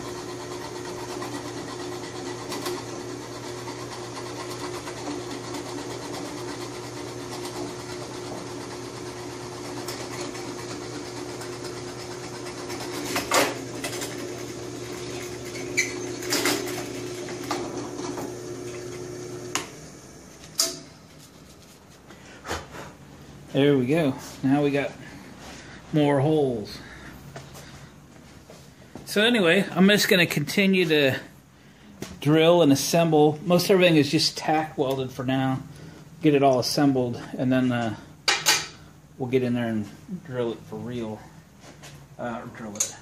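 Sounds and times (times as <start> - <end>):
drill press drilling wood: 0.0 - 20.6.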